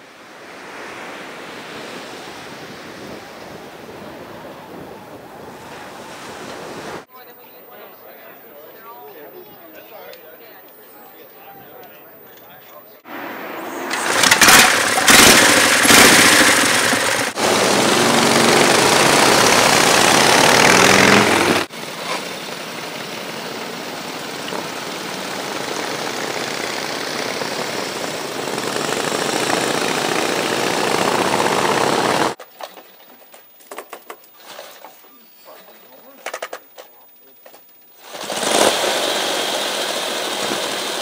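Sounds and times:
motorcycles passing on road: 13.1s - 32.4s, 38.0s - 41.0s
motorcycle engine starting and running: 13.6s - 32.4s, 38.0s - 41.0s.

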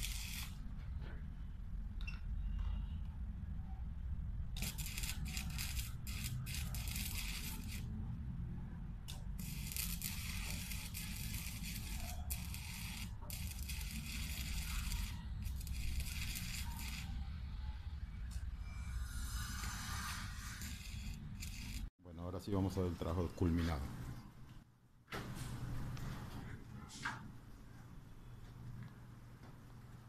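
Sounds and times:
arc welding crackling hiss: 0.0s - 0.6s, 4.6s - 7.9s, 9.4s - 17.2s, 19.3s - 21.9s.

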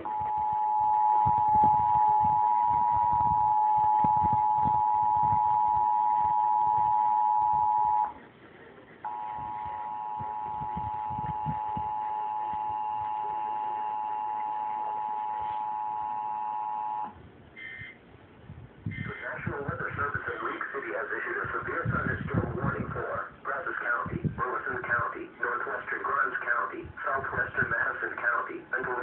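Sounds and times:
two-tone alert signal: 0.0s - 8.1s, 9.1s - 17.9s.

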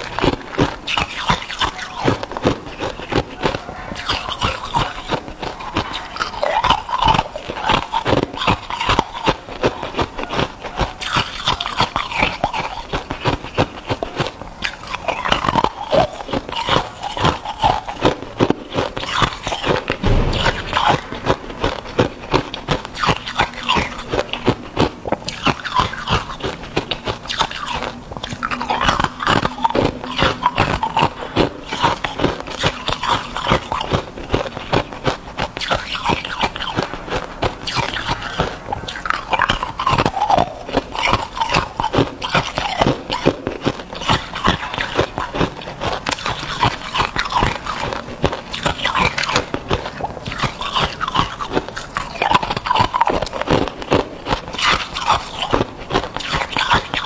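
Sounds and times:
ice crunching between teeth: 0.0s - 57.0s.

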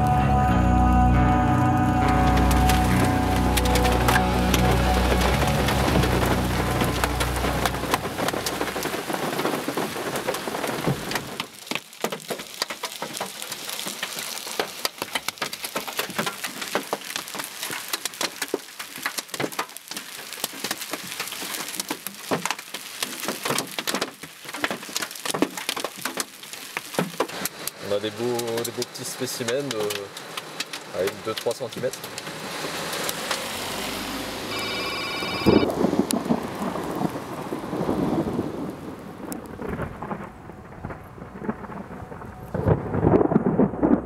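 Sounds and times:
music: 0.0s - 8.6s
rain hiss: 2.2s - 43.6s
hail clicking on car: 2.3s - 33.6s, 35.6s - 41.6s.

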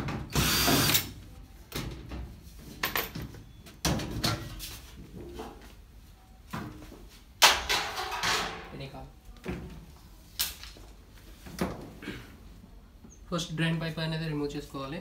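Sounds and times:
cordless drill spinning: 0.4s - 1.0s
knocks and clatters of tools: 1.7s - 5.6s, 7.4s - 8.7s.

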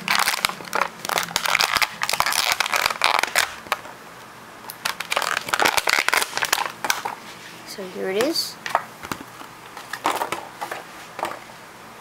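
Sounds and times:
plastic packaging crinkling: 0.0s - 3.9s, 4.7s - 7.2s.

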